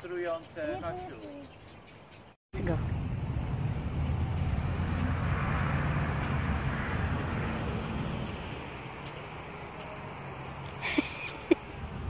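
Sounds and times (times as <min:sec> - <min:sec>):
rushing road noise: 0:02.6 - 0:12.0
vehicle engine passing: 0:02.6 - 0:12.0.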